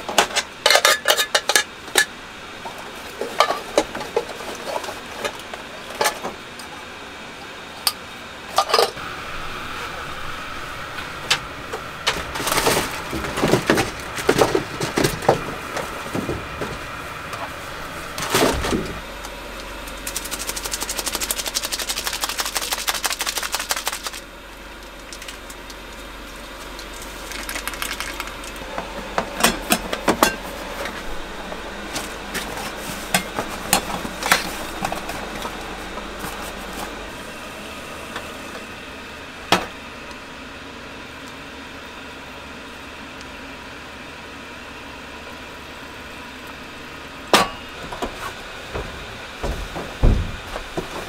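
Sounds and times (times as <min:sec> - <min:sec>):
gas stove hum: 0:00.0 - 0:51.0
fast rattling: 0:19.9 - 0:24.2.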